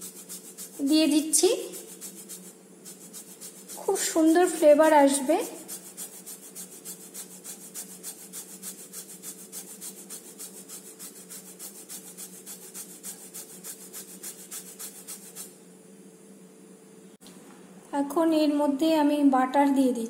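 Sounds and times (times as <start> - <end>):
rind rasping on metal grater: 0.0 - 15.6.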